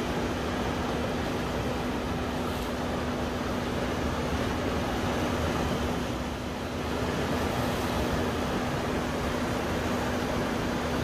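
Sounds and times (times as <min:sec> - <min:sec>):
sea surf washing over rocks: 0:00.0 - 0:11.0.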